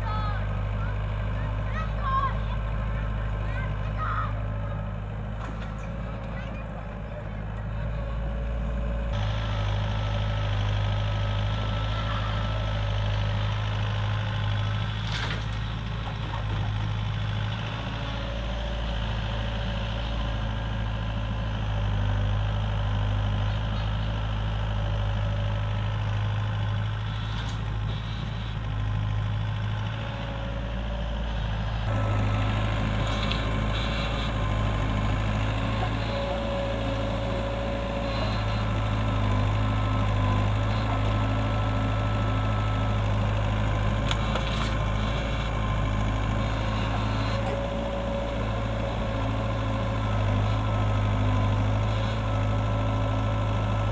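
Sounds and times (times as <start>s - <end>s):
excavator diesel engine running: 0.0s - 53.9s.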